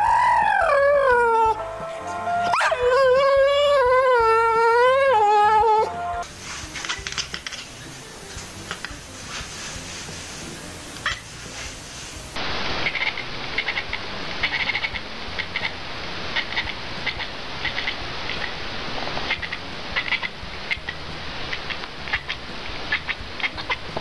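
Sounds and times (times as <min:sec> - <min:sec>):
cat chattering: 0:12.8 - 0:18.6, 0:19.3 - 0:23.9.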